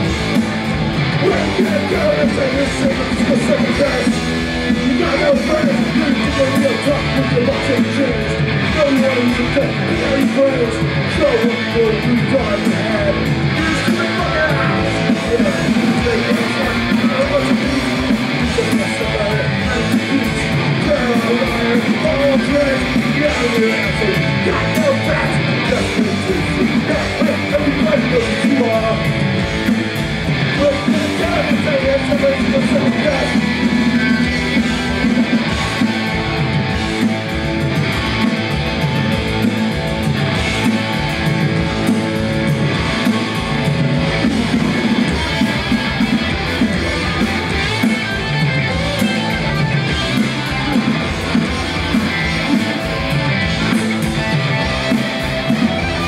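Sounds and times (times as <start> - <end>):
punk rock band playing live: 0.0 - 56.0
person singing: 1.2 - 36.0.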